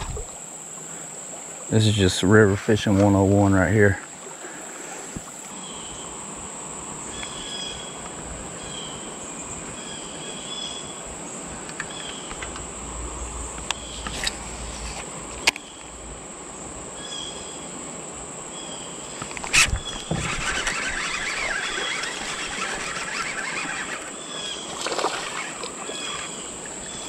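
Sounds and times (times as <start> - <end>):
high insect drone: 0.0 - 27.0
short insect chirps: 4.1 - 17.8, 18.5 - 27.0
sharp clicks: 19.2 - 24.1.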